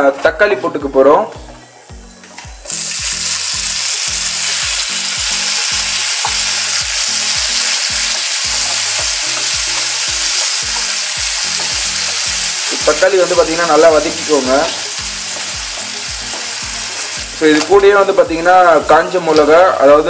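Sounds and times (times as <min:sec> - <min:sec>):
tomatoes sizzling in hot fat: 0:02.6 - 0:20.0.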